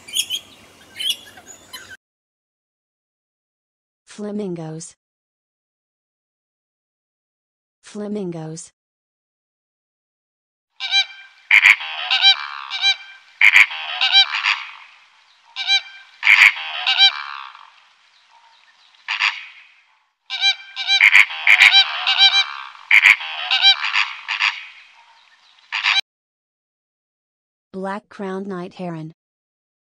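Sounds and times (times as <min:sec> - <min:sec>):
flamingos calling: 0:00.0 - 0:02.0, 0:10.8 - 0:26.0.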